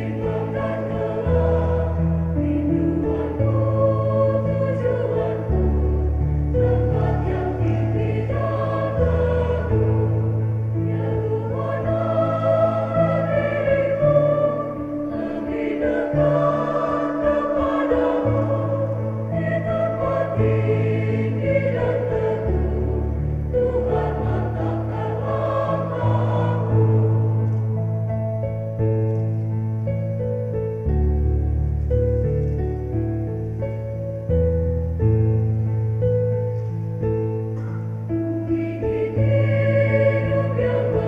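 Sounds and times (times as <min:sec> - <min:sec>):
choir singing a hymn: 0:00.0 - 0:28.6, 0:37.7 - 0:41.0
low held accompaniment notes: 0:00.0 - 0:41.0.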